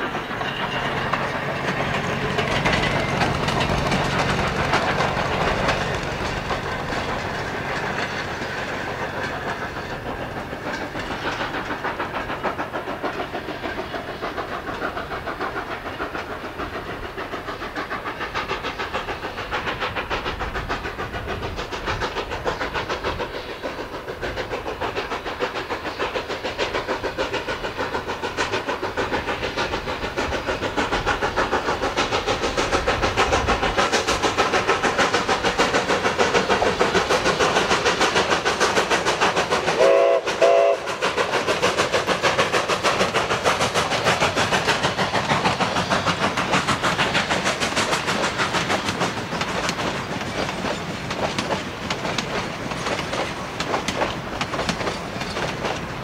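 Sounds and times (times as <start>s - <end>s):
rail cars rumbling and clattering: 0.0s - 56.0s
steam locomotive chuffing: 0.0s - 56.0s
steam whistle: 39.8s - 41.0s.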